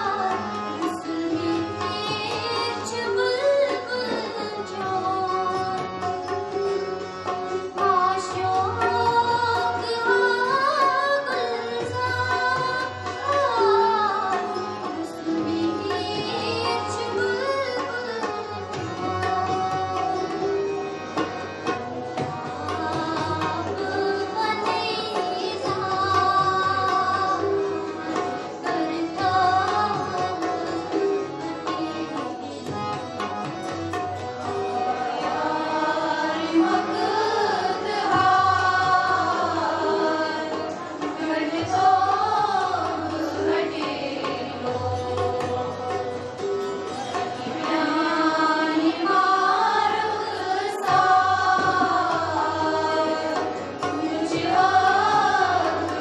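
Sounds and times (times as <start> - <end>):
harmonium chords: 0.0 - 56.0
girls choir singing: 22.4 - 32.2, 34.6 - 46.2, 47.3 - 56.0
hand drum beat: 50.4 - 56.0.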